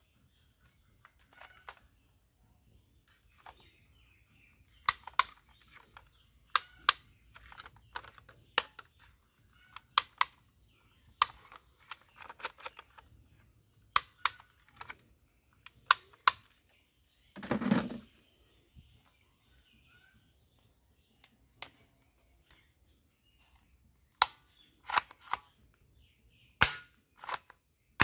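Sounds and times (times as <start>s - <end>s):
toy rifle plastic clicks: 4.7s - 10.4s, 11.1s - 13.1s, 13.9s - 16.6s, 24.1s - 25.6s, 26.6s - 27.6s.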